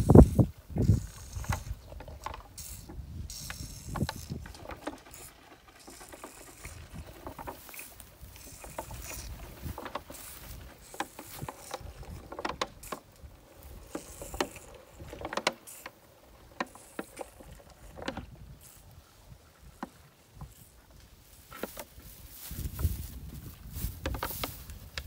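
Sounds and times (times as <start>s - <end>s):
wind rumble on microphone: 0.0s - 5.2s, 21.9s - 25.0s.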